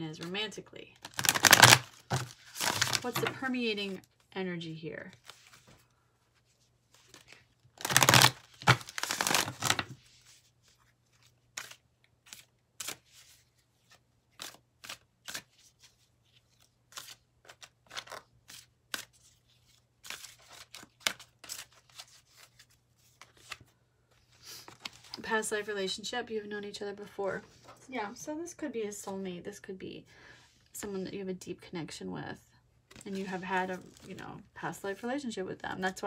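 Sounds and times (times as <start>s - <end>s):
cards shuffling rustle: 1.0s - 3.4s, 5.1s - 25.2s.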